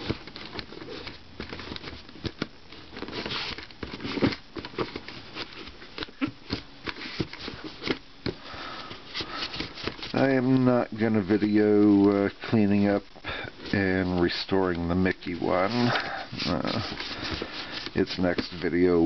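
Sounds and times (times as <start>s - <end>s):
cloth rubbing on plastic: 13.6s - 19.0s.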